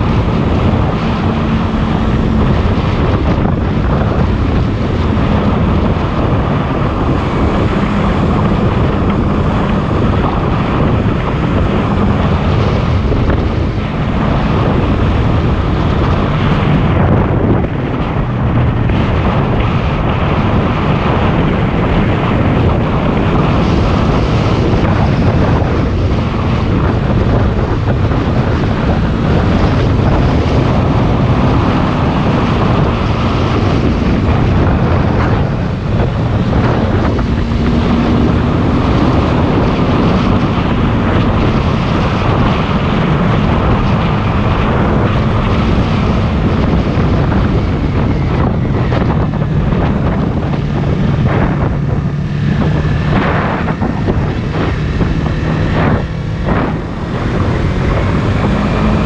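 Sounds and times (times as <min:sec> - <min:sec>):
motorcycle engine running: 0:00.0 - 0:59.0
wind noise on microphone: 0:00.0 - 0:59.0.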